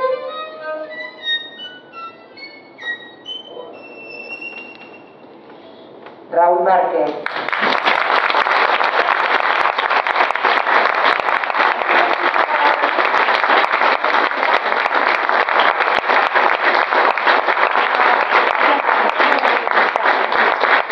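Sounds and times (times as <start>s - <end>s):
audience applauding: 7.2s - 20.9s.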